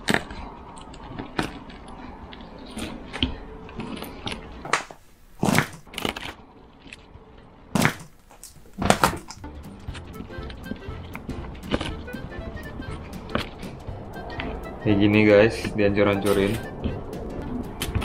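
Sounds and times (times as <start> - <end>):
sharp cracks: 4.6 - 6.4, 7.7 - 10.0
rolling pin crushing fried chicken: 7.8 - 9.4.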